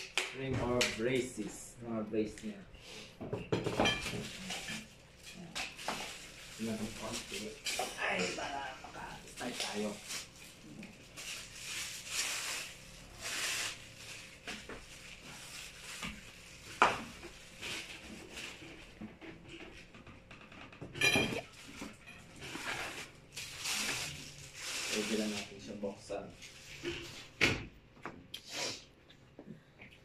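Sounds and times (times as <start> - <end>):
plastic wrap rustling: 4.0 - 20.0, 21.4 - 27.4.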